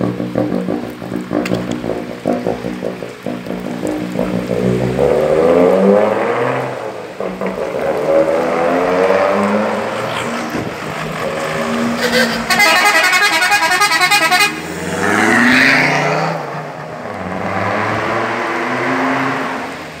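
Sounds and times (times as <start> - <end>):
van engine running: 0.0 - 5.7
pulsing warble horn: 0.0 - 18.0
other horn tones: 11.6 - 15.5.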